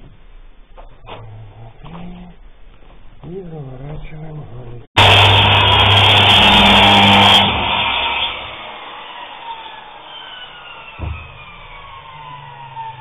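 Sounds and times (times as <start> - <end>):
circular saw winding down: 5.0 - 13.0.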